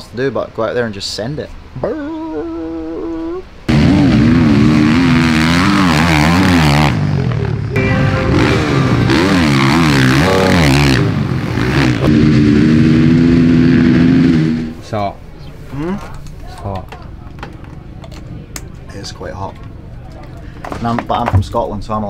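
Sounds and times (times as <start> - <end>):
motocross bike engine revving: 3.7 - 14.9.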